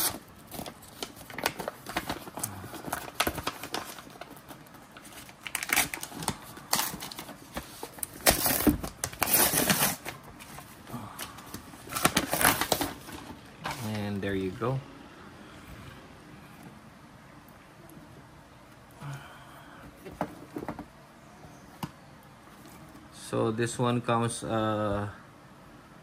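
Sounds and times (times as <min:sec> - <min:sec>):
paper tearing and crumpling: 0:00.0 - 0:04.3, 0:05.0 - 0:10.2.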